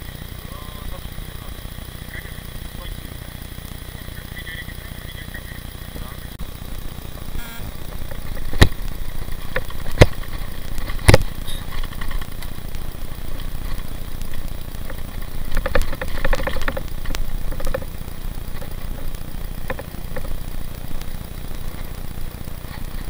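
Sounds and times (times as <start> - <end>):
bicycle tyres on rough lane: 0.0 - 23.0
wind rumble: 6.4 - 23.0.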